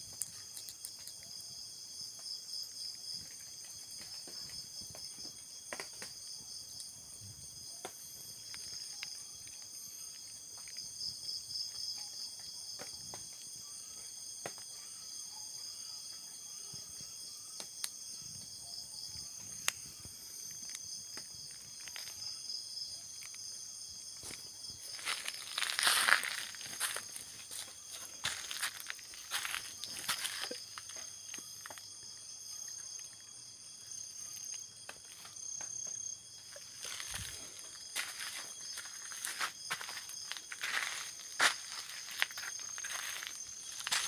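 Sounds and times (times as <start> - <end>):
night insects trilling: 0.0 - 44.0
footsteps rustling through undergrowth: 24.2 - 31.0, 36.6 - 44.0.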